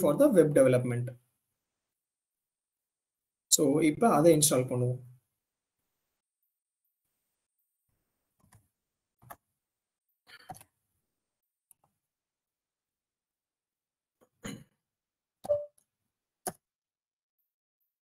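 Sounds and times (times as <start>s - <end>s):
keyboard and mouse clicks: 8.4s - 9.5s, 10.3s - 10.8s, 15.4s - 15.7s, 16.4s - 16.6s.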